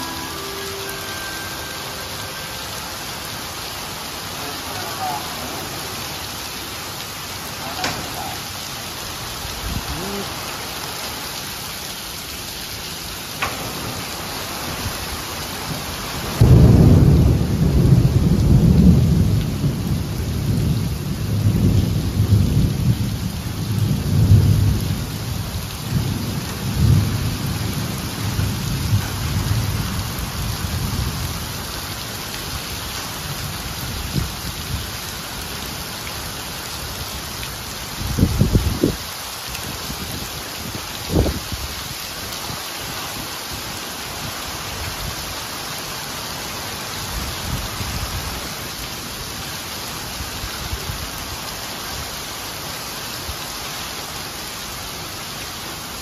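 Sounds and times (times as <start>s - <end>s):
heavy rain on pavement: 0.0s - 56.0s
deep thunder rumble: 15.7s - 25.0s.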